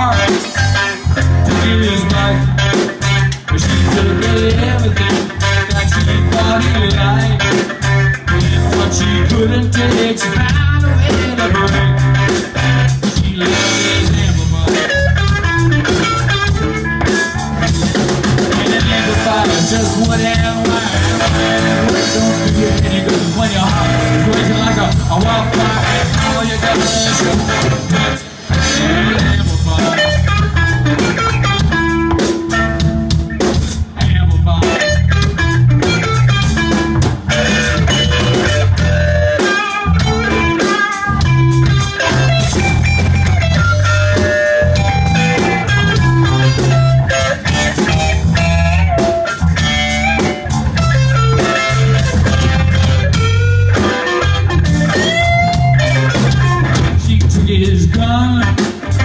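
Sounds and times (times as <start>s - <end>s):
driving bass: 0.0s - 59.0s
drums: 0.0s - 59.0s
electric guitar melody: 0.0s - 59.0s.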